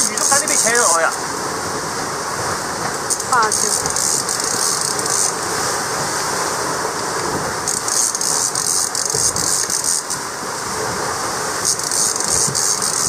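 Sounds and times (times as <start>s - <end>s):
sea rushing along a hull: 0.0s - 13.0s
wind on microphone: 0.0s - 13.0s
high rattling hiss: 3.0s - 6.6s, 7.6s - 13.0s.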